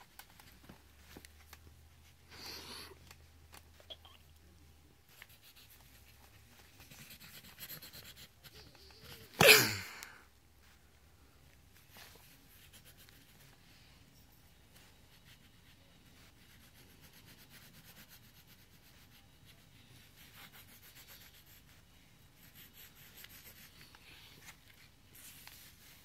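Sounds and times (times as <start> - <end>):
pencil scratching on paper: 5.1 - 9.4, 12.0 - 13.6, 14.6 - 26.0.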